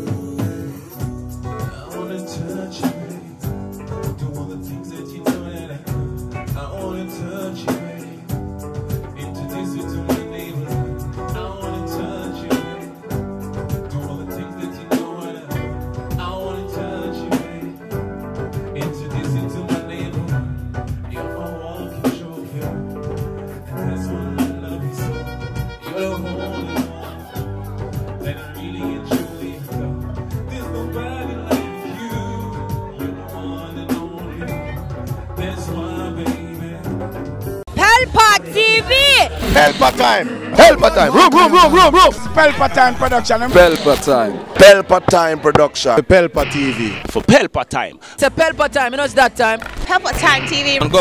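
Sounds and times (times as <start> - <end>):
bass: 0.0 - 47.4, 48.0 - 51.0
guitar: 0.0 - 51.0
person singing: 0.4 - 37.4
drum beat: 36.4 - 40.1, 49.6 - 51.0.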